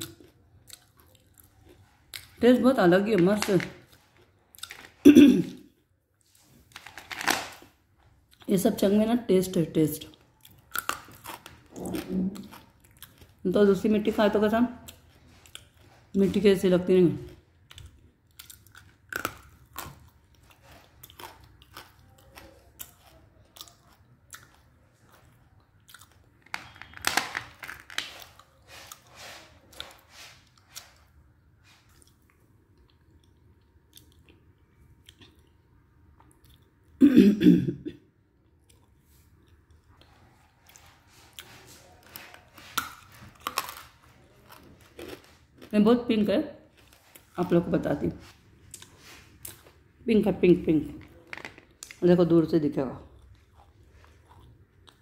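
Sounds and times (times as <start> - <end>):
clay being chewed with crunching: 0.0 - 2.4, 10.0 - 13.4, 14.8 - 16.5, 17.3 - 37.0, 38.4 - 45.7, 48.2 - 49.9, 53.1 - 55.0
throat sound like a cough: 5.0 - 5.7, 37.0 - 38.0.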